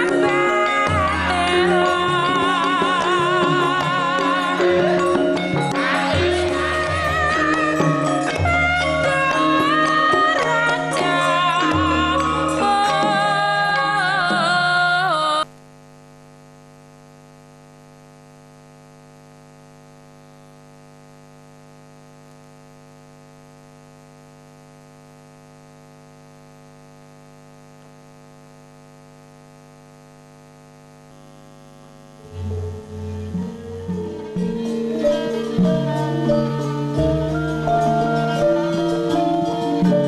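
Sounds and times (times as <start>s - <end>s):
music with singing voice: 0.0s - 15.5s, 32.2s - 40.0s
electrical mains hum: 15.4s - 34.7s.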